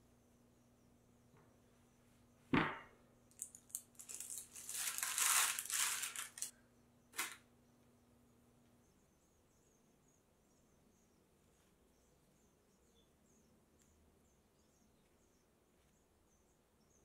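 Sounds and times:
baking tray thud on table: 2.5s - 3.0s
baking parchment crinkling: 3.3s - 6.5s, 7.2s - 7.4s.

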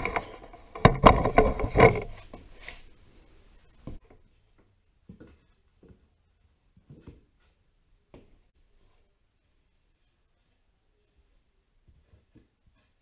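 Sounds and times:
hard objects clattering: 0.0s - 2.5s.

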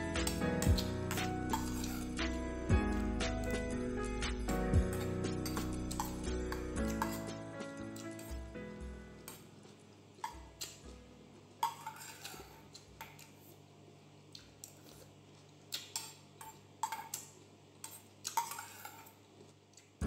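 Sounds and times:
metal spoon clinking on steel bowl: 0.2s - 2.0s, 4.9s - 7.4s, 11.6s - 12.4s, 16.0s - 17.2s.

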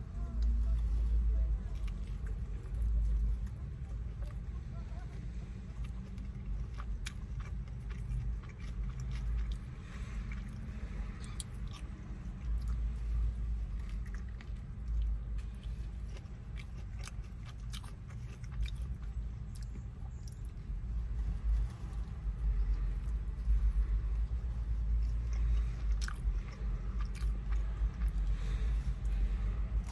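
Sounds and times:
chewing mouth clicks and smacks: 5.7s - 12.8s, 13.6s - 20.7s, 21.9s - 29.2s.

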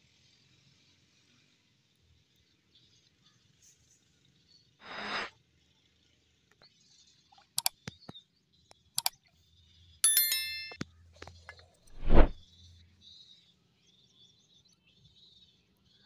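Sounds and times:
mouse clicks: 7.6s - 7.8s
bell-like ding: 10.0s - 10.8s.

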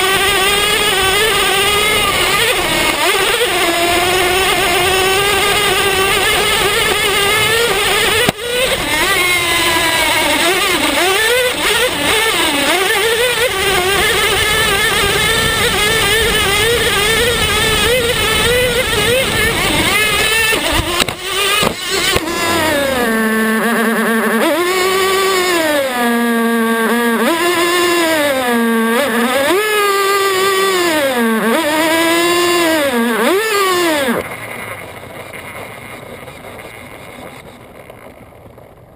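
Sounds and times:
small engine screaming at high revs: 0.0s - 38.9s.

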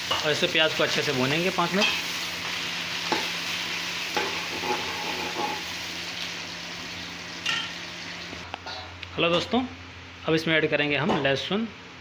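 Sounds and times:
onion sizzling in hot oil: 0.0s - 8.5s
spatula scraping pan: 4.1s - 5.6s.

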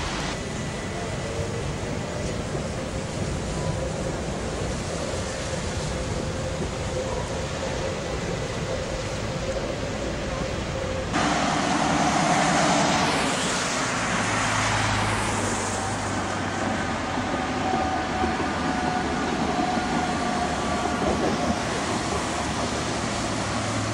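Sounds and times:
tram wheels rumbling on rails: 0.0s - 23.9s.

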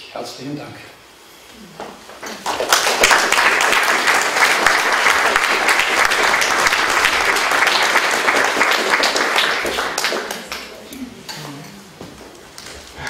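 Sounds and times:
audience applauding: 2.2s - 10.9s.

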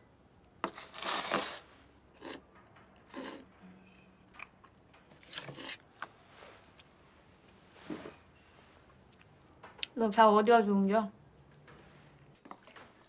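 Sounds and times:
noodles slurped: 3.0s - 3.5s.

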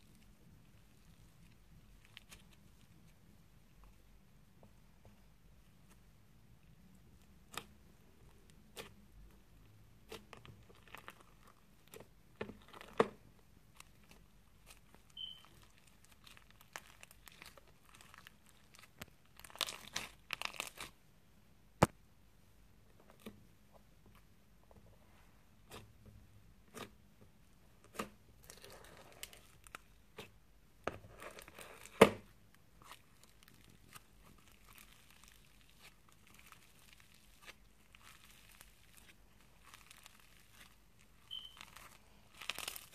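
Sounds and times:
slime crunching: 0.0s - 3.2s, 6.9s - 21.0s, 27.8s - 30.4s, 31.0s - 42.9s
slime crackling and popping: 7.2s - 21.0s, 27.8s - 30.4s, 31.1s - 42.9s.

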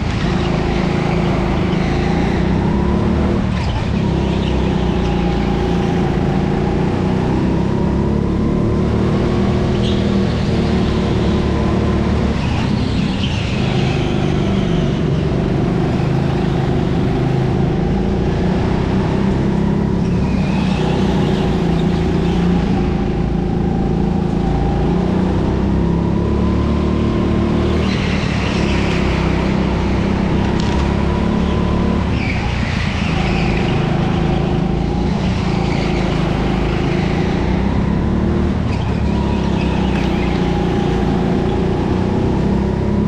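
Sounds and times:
racing kart motor: 0.0s - 43.0s
tyre squeals: 9.6s - 17.9s, 19.7s - 24.0s, 27.5s - 41.9s.

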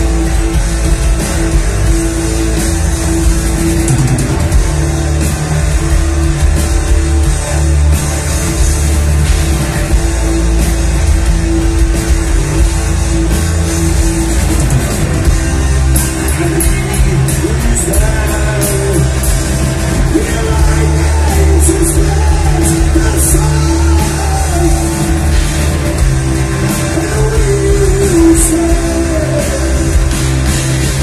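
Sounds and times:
bass guitar: 0.0s - 31.0s
distorted electric guitars: 0.0s - 31.0s
drums: 0.0s - 31.0s.

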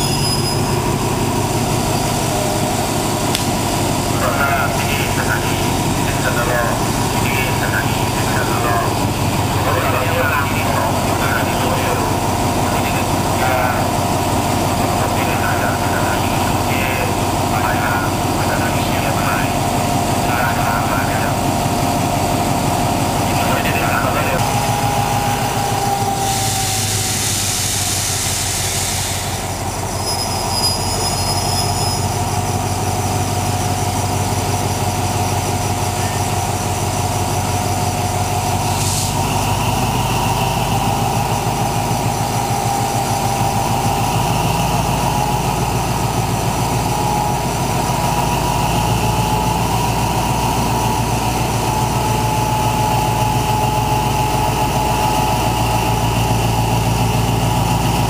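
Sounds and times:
loud hiss: 0.0s - 7.2s, 24.4s - 32.2s, 37.7s - 44.9s
diesel locomotive idling: 0.0s - 58.0s
held whine: 23.3s - 33.0s.

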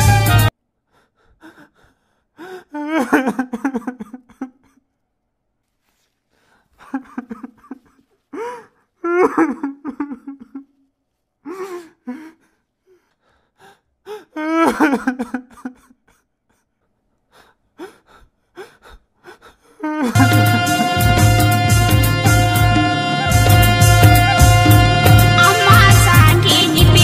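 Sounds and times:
person sobbing: 1.4s - 4.8s, 6.8s - 10.8s, 11.4s - 13.1s, 14.0s - 16.7s, 17.8s - 21.4s.

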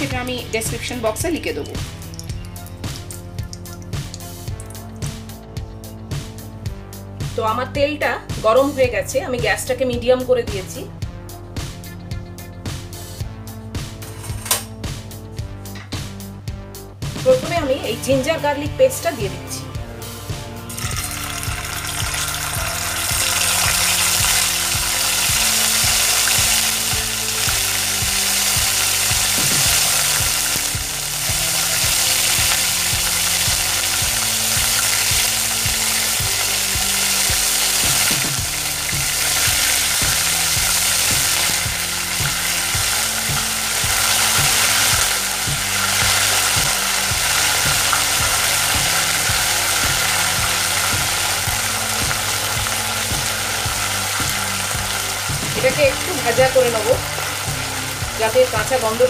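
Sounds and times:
paste sizzling in hot oil: 0.0s - 5.4s, 20.6s - 59.0s.

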